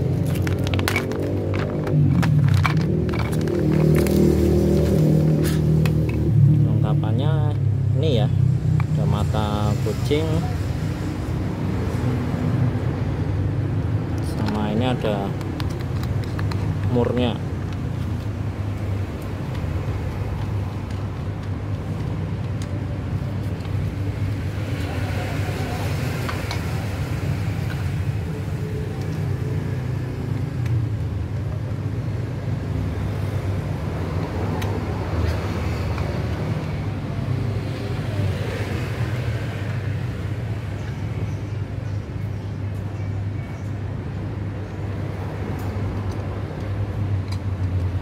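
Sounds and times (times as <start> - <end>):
low vehicle rumble: 0.0 - 32.2.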